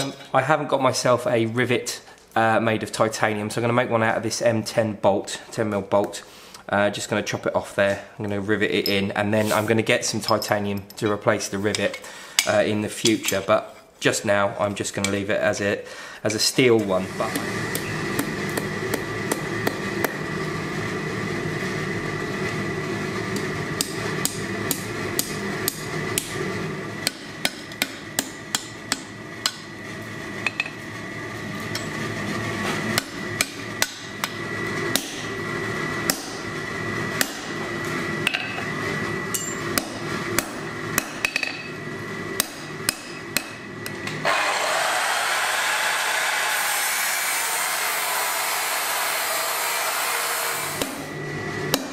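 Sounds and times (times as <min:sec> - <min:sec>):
angle grinder whirring: 0:17.0 - 0:20.9, 0:43.8 - 0:51.5.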